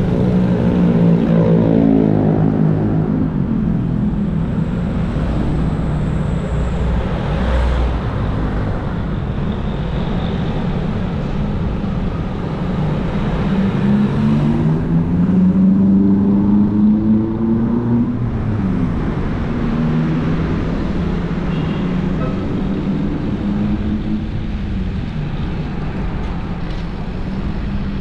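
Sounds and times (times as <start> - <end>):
motorbike and car traffic: 0.0 - 28.0
wind rumble on camera: 0.0 - 28.0.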